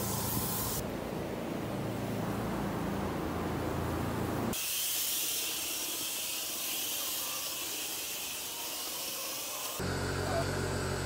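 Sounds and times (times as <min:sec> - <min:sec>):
spray wand hissing: 0:00.0 - 0:00.8, 0:04.6 - 0:09.8.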